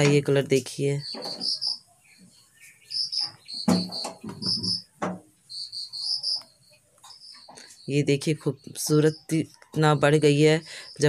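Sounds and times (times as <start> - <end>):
crickets chirping: 1.0 - 1.8, 2.9 - 4.9, 5.5 - 8.0
sharp knocks: 3.6 - 5.3.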